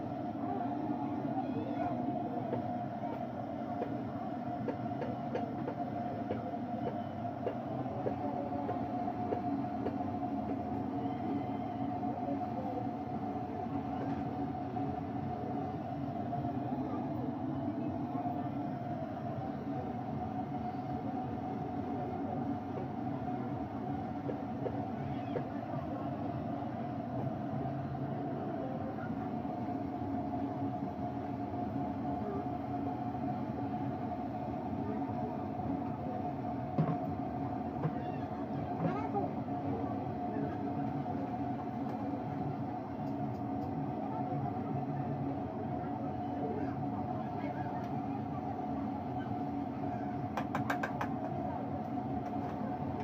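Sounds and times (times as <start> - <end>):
continuous low roar: 0.0 - 53.0.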